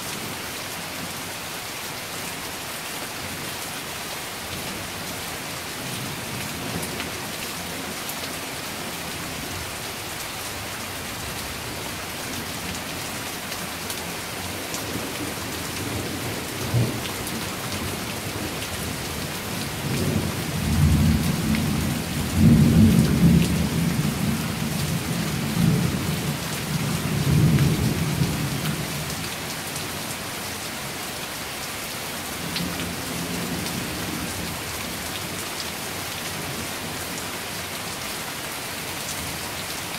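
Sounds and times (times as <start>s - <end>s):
steady rain falling: 0.0s - 39.9s
rolling rumble of thunder: 19.8s - 28.7s.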